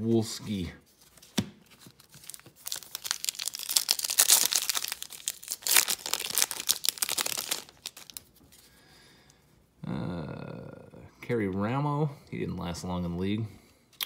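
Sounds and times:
foil wrapper tearing and crinkling: 2.0s - 8.3s.

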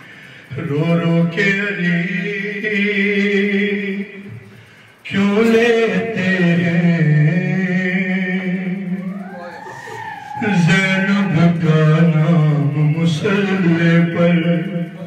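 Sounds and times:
man chanting into a microphone: 0.0s - 4.4s, 5.0s - 9.0s, 10.4s - 15.0s.

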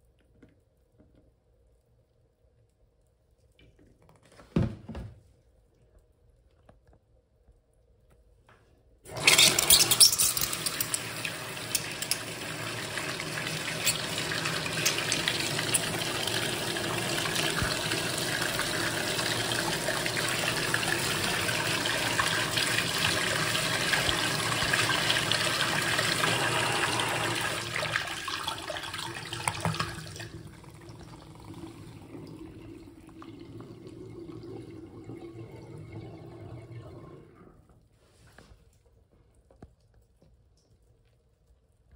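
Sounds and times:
water splashing into sink: 9.1s - 37.6s
toilet flushing: 9.1s - 37.9s
water running: 9.1s - 38.0s.

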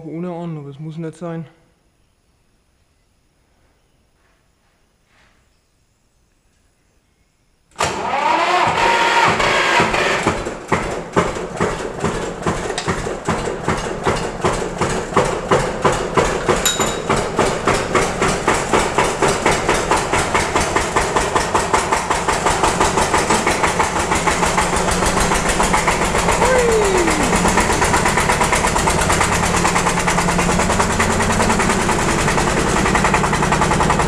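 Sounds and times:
diesel tractor engine starting: 7.7s - 34.0s
tractor engine idling: 8.0s - 34.0s.

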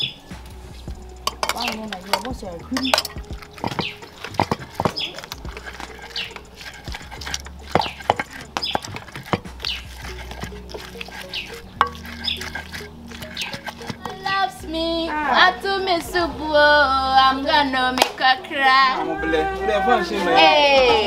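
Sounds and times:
pestle knocking and scraping: 0.0s - 14.7s.

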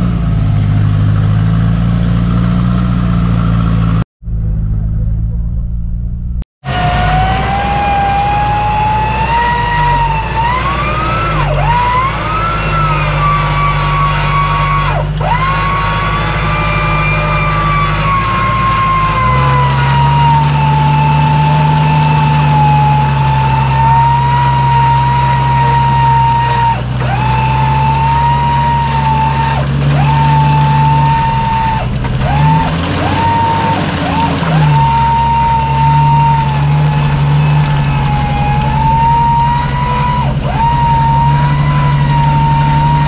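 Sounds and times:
engine running under load: 0.0s - 43.0s
high wavering whine: 4.2s - 7.7s, 30.7s - 43.0s.

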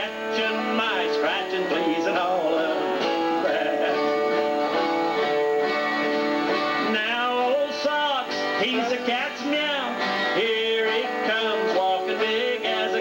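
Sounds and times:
acoustic guitars strumming: 0.0s - 13.0s
lead guitar with bending notes: 0.0s - 13.0s.

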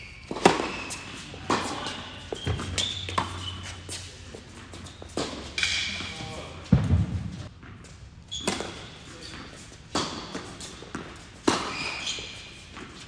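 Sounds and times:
shoes squeaking on court: 0.0s - 6.7s, 7.4s - 13.0s
ball bouncing on hard court: 5.1s - 12.2s
tennis ball struck by racquets: 9.9s - 11.9s.

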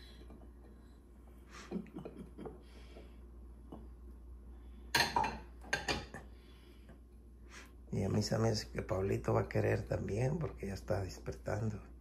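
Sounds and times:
bowls and glass jar clinking: 4.9s - 6.3s.

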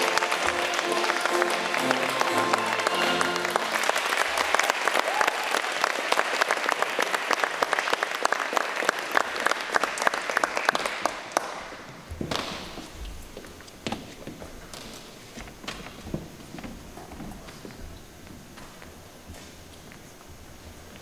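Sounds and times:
audience clapping: 0.0s - 12.7s.

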